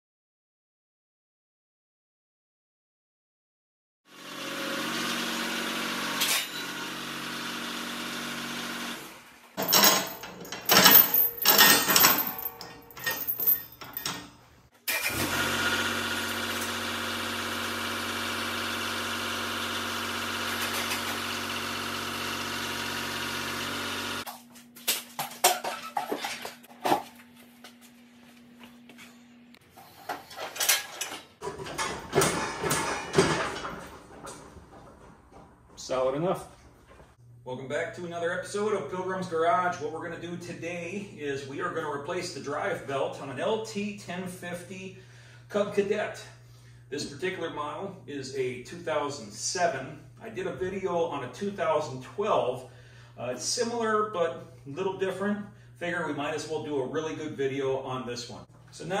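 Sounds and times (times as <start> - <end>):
metal clanks and knocks: 30.2 - 35.8.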